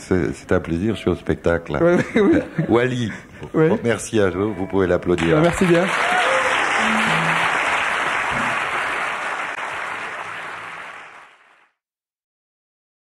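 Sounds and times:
audience applauding: 5.2 - 11.8.

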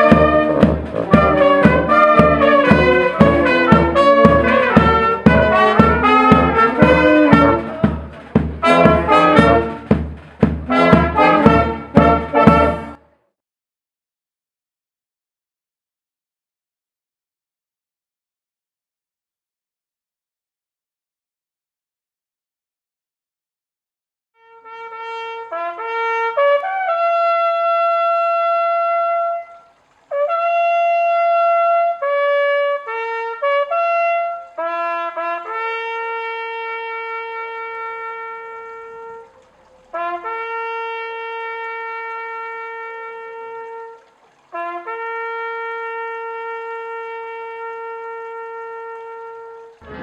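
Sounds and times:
solo trumpet playing: 0.0 - 13.2, 24.4 - 50.0.

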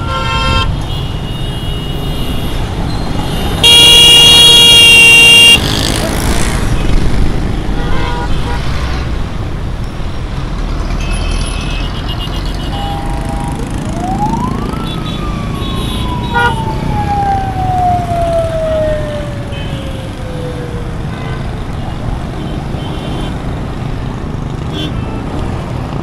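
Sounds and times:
horn toots: 3.3 - 5.6
siren rising and falling: 3.6 - 5.6, 12.9 - 21.0
car and motorcycle engines: 5.2 - 26.0.

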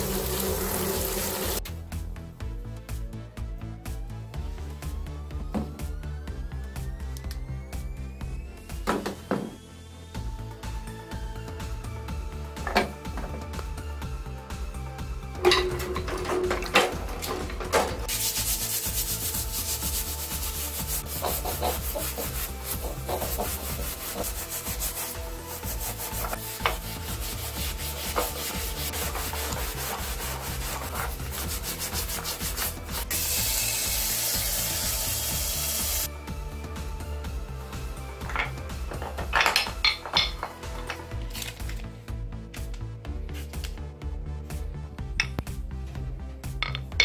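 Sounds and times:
scouring pad scrubbing wood: 18.1 - 33.1
loud hiss: 33.1 - 36.1.

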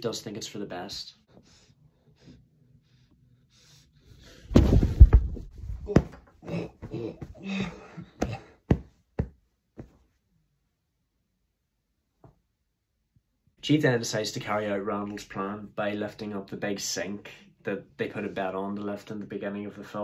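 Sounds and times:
sharp knocks and bumps: 4.5 - 7.4, 8.2 - 10.0.

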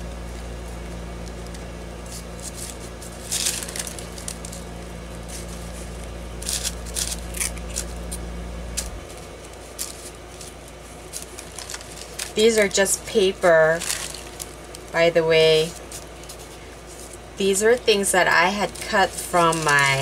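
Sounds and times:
steady low hum: 0.0 - 20.0
waxed paper crinkling: 0.2 - 8.2, 8.8 - 20.0.

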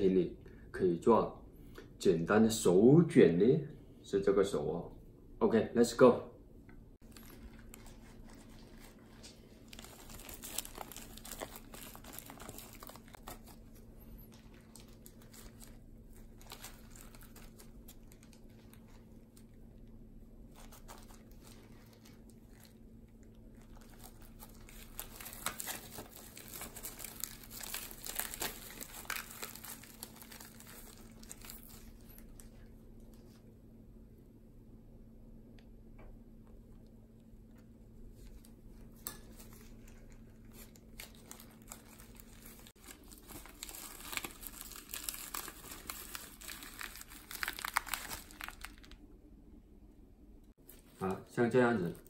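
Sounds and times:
faint steady hum: 0.0 - 52.0
plastic gloves crinkling: 7.0 - 33.5, 38.0 - 49.1
dry seaweed rustling: 7.1 - 19.4, 20.5 - 32.6, 39.0 - 49.0.

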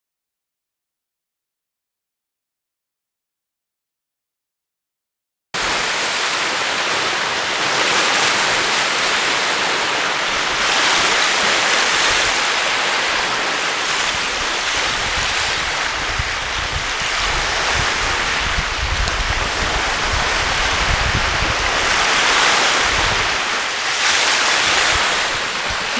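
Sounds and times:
icy water washing on shore: 5.6 - 25.9
wind buffeting microphone: 5.6 - 25.9.

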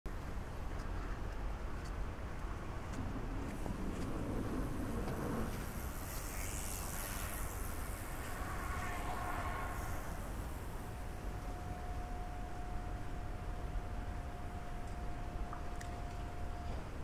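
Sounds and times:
faint steady whine: 0.1 - 17.0
steady low rumble: 0.1 - 17.0
vehicle passing: 3.5 - 11.4.

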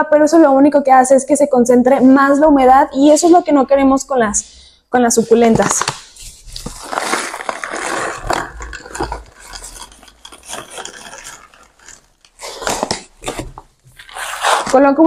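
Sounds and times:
paper bag crinkling: 5.6 - 14.8
gritty grains rattling: 6.4 - 13.2.

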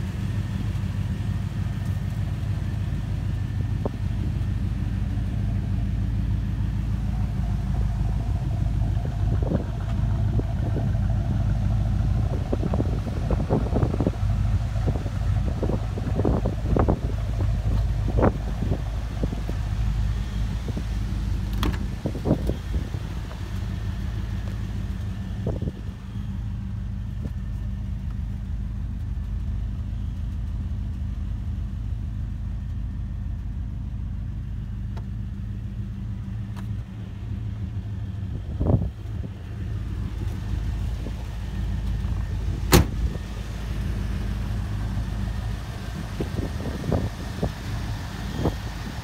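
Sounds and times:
car engine idling: 0.0 - 49.0
sharp engine knocks: 41.9 - 43.3.

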